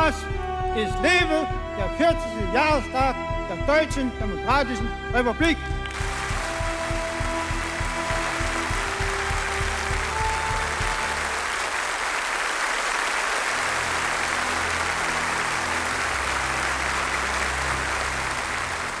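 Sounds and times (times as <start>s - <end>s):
large audience applauding: 5.8s - 19.0s.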